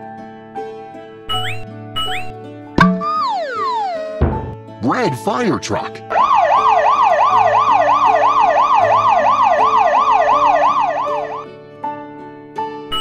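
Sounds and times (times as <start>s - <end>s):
cartoon siren wailing: 3.0s - 4.2s, 6.1s - 11.4s.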